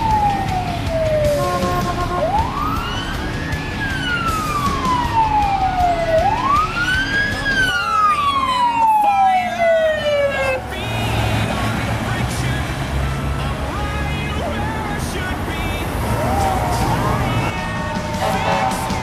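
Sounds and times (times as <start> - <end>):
electronic wail siren: 0.0 - 10.8, 16.2 - 19.0
low rumble of passing traffic: 7.9 - 19.0.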